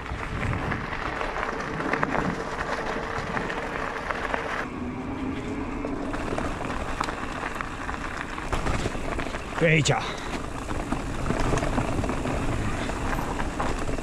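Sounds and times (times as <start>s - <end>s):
wind on microphone: 0.0s - 3.8s
bike tyres rolling on trail: 0.0s - 14.0s.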